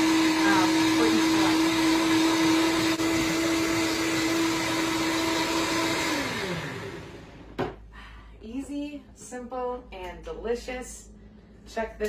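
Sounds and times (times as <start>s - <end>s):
blender whining: 0.0s - 7.7s.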